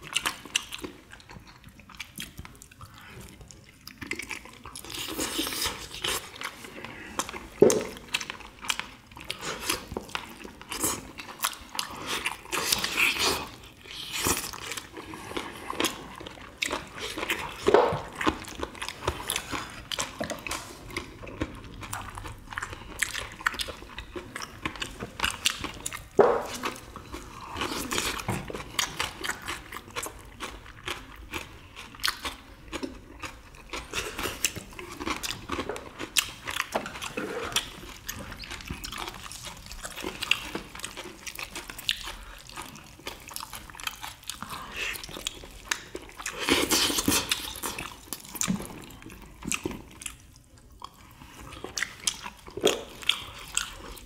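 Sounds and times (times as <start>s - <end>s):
chewing and mouth smacks: 0.0s - 54.0s.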